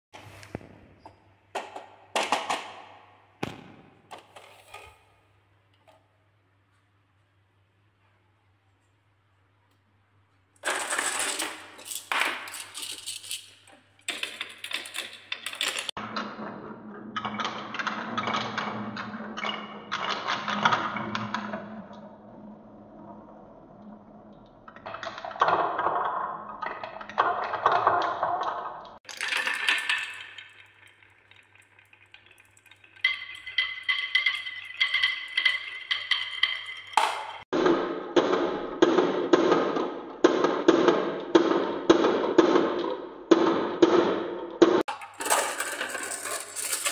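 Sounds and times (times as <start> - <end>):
marbles rolling down wooden track: 10.6 - 22.1, 24.7 - 37.5, 44.8 - 46.9.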